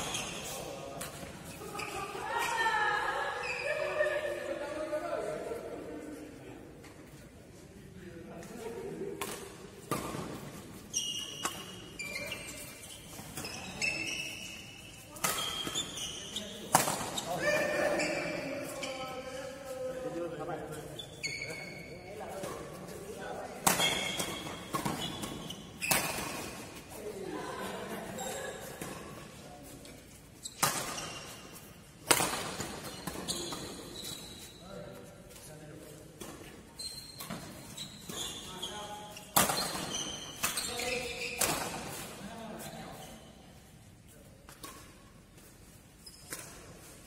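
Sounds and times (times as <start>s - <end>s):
shoes squeaking on court floor: 0.0s - 2.6s, 3.4s - 4.0s, 8.4s - 47.0s
rackets hitting shuttlecock: 15.1s - 16.0s, 16.6s - 17.5s, 23.6s - 26.9s, 30.5s - 34.0s, 39.3s - 42.2s.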